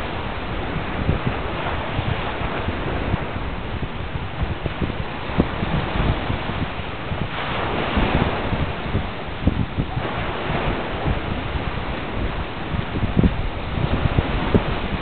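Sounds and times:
sea surf washing: 0.0 - 15.0
wind buffeting microphone: 0.0 - 15.0.

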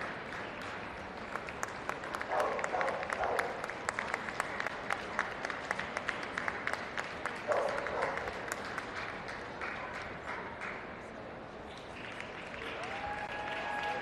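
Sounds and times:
audience applause: 0.0 - 10.7, 11.9 - 14.0
call from the crowd: 12.6 - 14.0.

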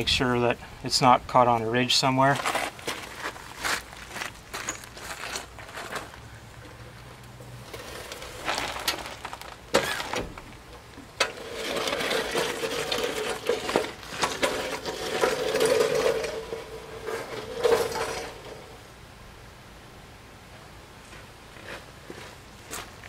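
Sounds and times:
metal jack clanking and rattling: 7.7 - 18.8.

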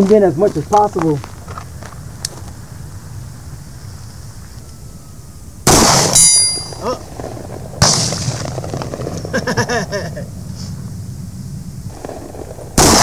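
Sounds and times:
high ringing: 3.8 - 7.1
pistol shots: 5.6 - 6.8, 7.8 - 9.1, 11.9 - 13.0.

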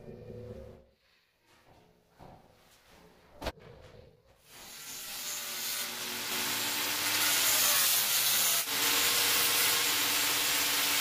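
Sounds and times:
angle grinder cutting: 4.5 - 11.0.

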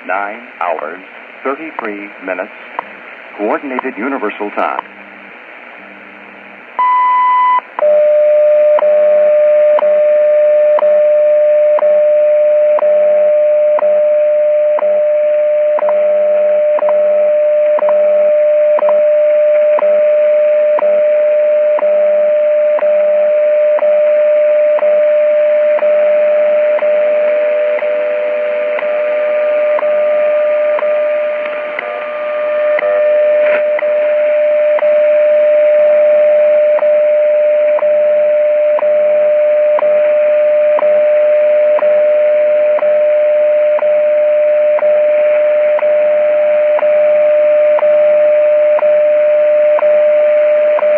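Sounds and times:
static hiss: 0.0 - 11.4, 12.2 - 36.5
steady radio tone: 18.0 - 47.4.

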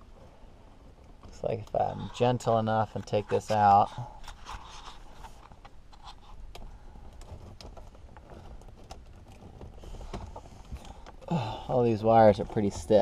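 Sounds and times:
plastic panel clicks and scraping: 1.2 - 11.3.

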